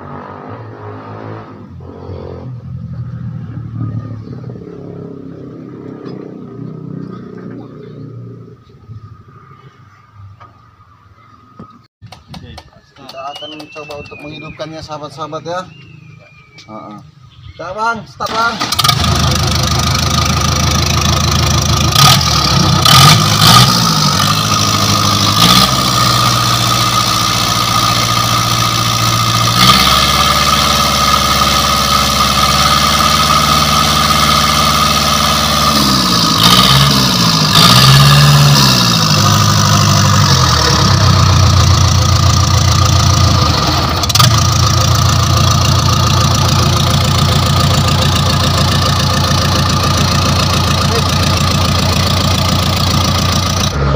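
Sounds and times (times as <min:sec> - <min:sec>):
bulldozer diesel engine revving: 0:18.3 - 0:53.9.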